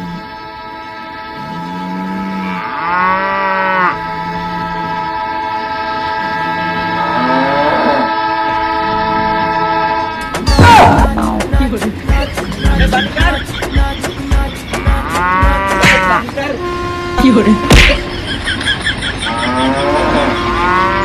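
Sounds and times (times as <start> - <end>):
cow mooing: 0.0 - 0.4, 1.2 - 11.3, 14.9 - 18.2, 19.3 - 21.0
long train horn: 0.0 - 10.4, 15.6 - 18.3, 19.3 - 21.0.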